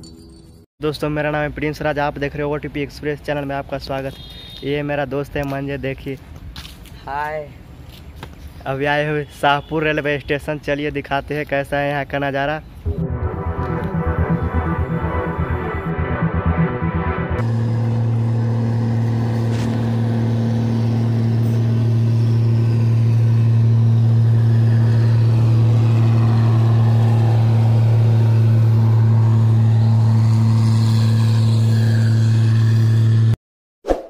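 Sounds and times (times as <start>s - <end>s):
electric train passing: 12.9s - 33.3s.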